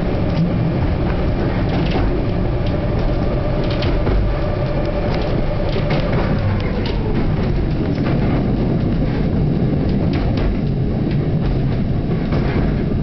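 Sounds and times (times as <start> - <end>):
train rumbling on track: 0.0 - 13.0
wheel clicks and knocks: 0.2 - 13.0.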